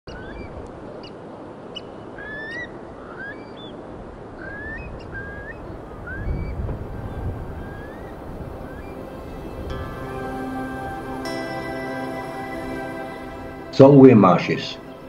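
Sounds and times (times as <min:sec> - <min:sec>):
birds whistling calls: 0:04.4 - 0:10.0
steady background rush: 0:05.3 - 0:15.0.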